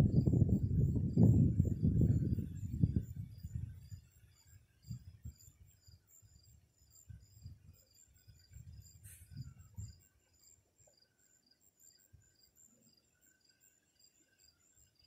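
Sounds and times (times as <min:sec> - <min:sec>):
night insects chirping: 0:00.0 - 0:15.0
brief hiss: 0:09.0 - 0:09.5.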